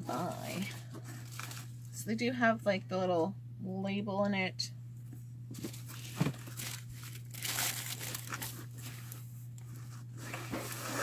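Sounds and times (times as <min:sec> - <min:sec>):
steady low hum: 0:00.0 - 0:11.0
blanket rustling and crinkling: 0:05.6 - 0:09.2.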